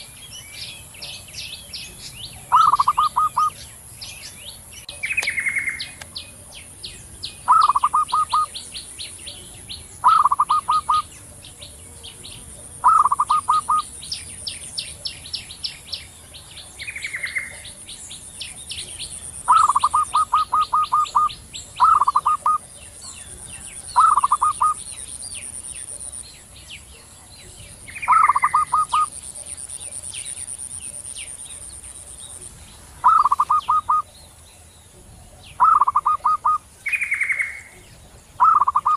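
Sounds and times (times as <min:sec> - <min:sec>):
faint high bird trills: 0:01.6 - 0:03.6, 0:07.4 - 0:08.6, 0:10.0 - 0:11.1, 0:12.8 - 0:13.9, 0:19.4 - 0:22.7, 0:33.0 - 0:34.1, 0:38.4 - 0:38.9
doves cooing: 0:02.5 - 0:03.6, 0:07.5 - 0:08.6, 0:10.0 - 0:13.9, 0:19.4 - 0:22.7, 0:23.5 - 0:24.8, 0:33.0 - 0:34.1, 0:35.6 - 0:36.7, 0:38.4 - 0:38.9.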